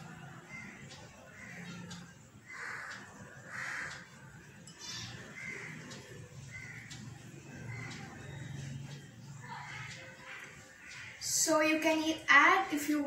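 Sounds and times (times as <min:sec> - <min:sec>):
crow cawing: 0:00.4 - 0:08.4, 0:09.4 - 0:11.3.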